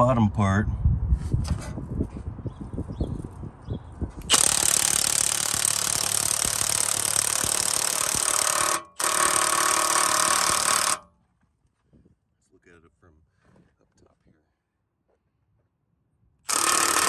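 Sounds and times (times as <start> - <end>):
cordless impact wrench hammering: 4.2 - 11.1, 16.5 - 17.0.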